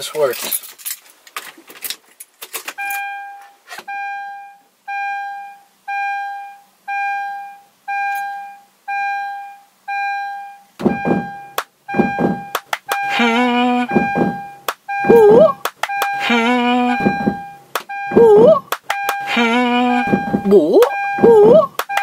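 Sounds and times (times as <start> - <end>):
car warning chime: 2.8 - 22.0.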